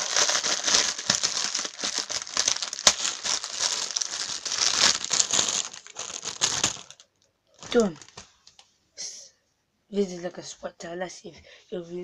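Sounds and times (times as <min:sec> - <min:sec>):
sharp plastic crack: 0:00.0 - 0:07.0
plastic bag crinkling: 0:00.0 - 0:08.6.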